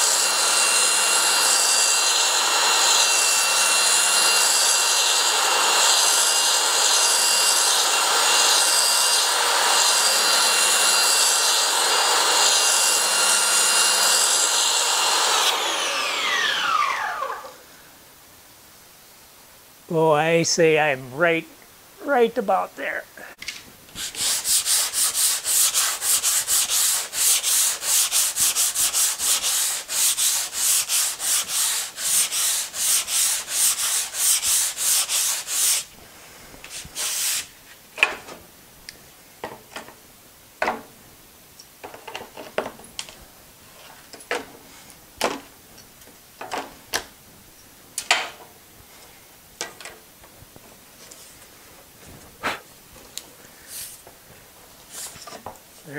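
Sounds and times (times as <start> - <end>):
sanding block rubbing plywood: 24.0 - 35.9, 36.6 - 37.5.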